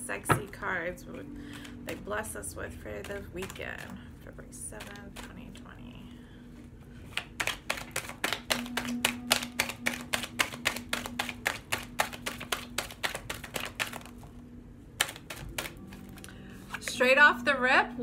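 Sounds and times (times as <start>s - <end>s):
cards being shuffled: 2.7s - 5.7s, 7.0s - 14.4s, 15.0s - 17.0s.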